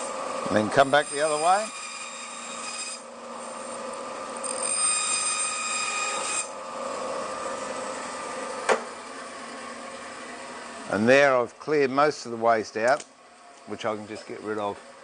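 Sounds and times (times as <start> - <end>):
saw blade cutting timber: 0.0 - 8.3, 13.7 - 15.0
bandsaw whine: 0.0 - 12.4.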